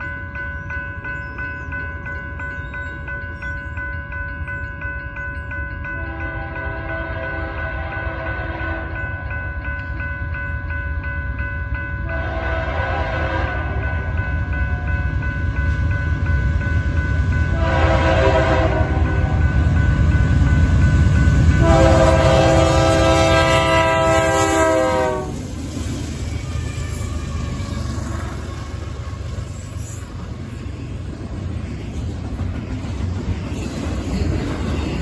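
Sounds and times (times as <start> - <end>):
crossing bell ringing: 0.0 - 25.6
deep rumble of passing train: 0.0 - 35.0
locomotive air horn blasts: 6.0 - 9.0, 12.1 - 14.2, 17.5 - 19.4, 21.6 - 25.4.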